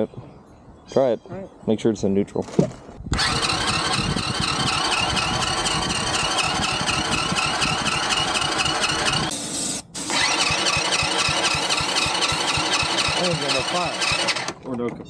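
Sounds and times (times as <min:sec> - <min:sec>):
small engine cranking with starter: 0:03.1 - 0:09.3, 0:10.1 - 0:14.6.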